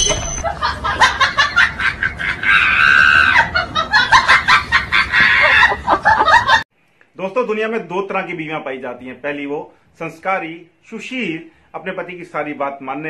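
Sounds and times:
person laughing and shrieking: 2.2 - 3.7, 5.0 - 6.1.

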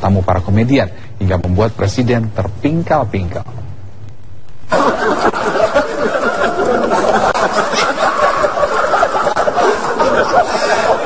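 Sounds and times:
group of people laughing: 4.7 - 11.0.

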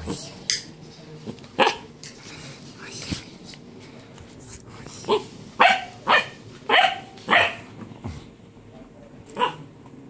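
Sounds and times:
dog barking: 5.6 - 7.7, 9.4 - 9.7.

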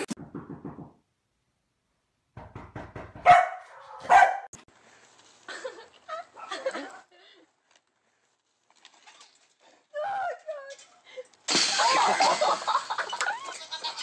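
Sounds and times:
dog barking: 3.2 - 4.5.

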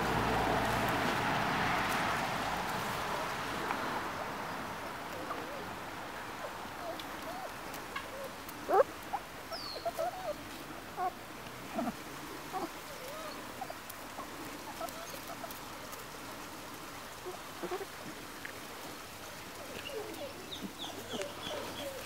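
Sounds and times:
puppies squeaking and whining: 9.6 - 10.4, 12.6 - 13.8.

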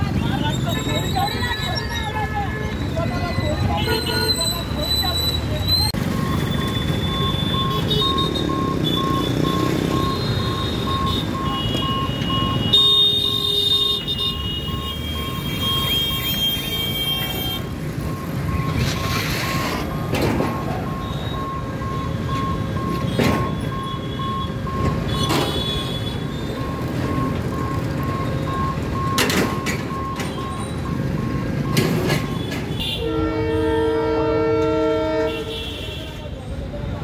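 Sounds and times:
level crossing warning beeps: 4.4 - 13.1, 13.7 - 32.6
idling scooters and trucks: 4.6 - 32.6
vehicle horn toots: 32.4 - 36.2.

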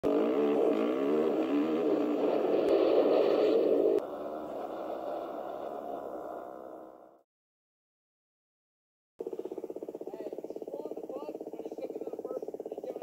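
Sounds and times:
dirt bike engine revving: 0.0 - 6.4
second dirt bike engine: 0.0 - 7.0, 9.2 - 13.0.

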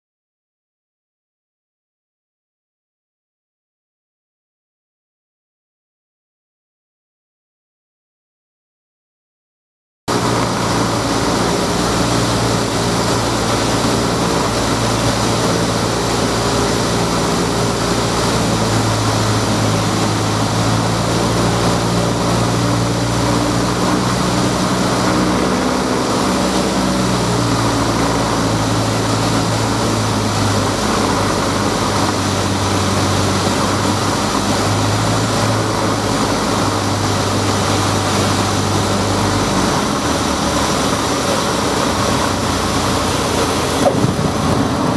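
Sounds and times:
airflow rushing: 10.1 - 44.9
propeller aircraft engine running: 10.1 - 44.9.

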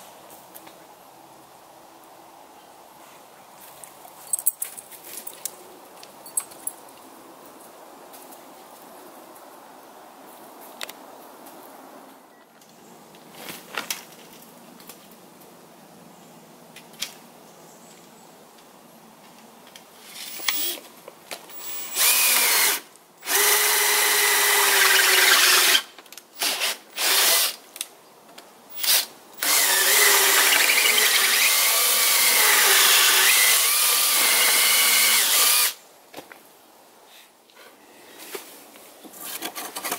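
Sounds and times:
cordless drill drilling into wood: 21.6 - 25.8, 26.4 - 27.6, 28.8 - 35.8.

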